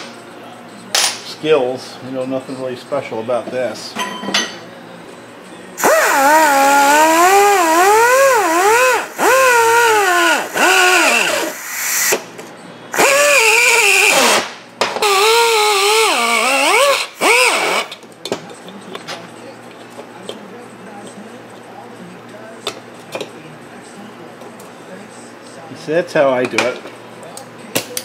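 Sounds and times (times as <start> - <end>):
die grinder whining on metal: 5.8 - 12.1.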